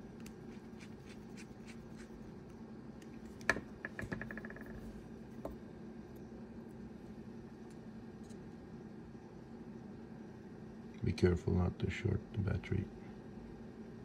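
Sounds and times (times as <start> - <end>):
steady low hum: 0.0 - 14.0
object bouncing on tabletop: 3.5 - 5.6.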